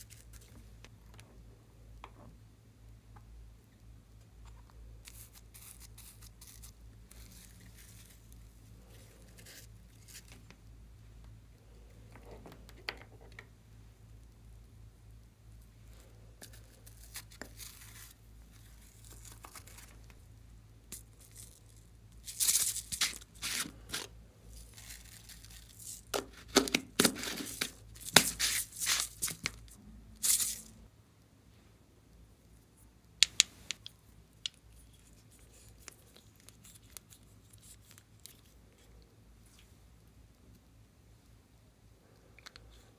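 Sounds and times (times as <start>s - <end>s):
glitter sheet rustling and tearing: 22.2s - 30.7s.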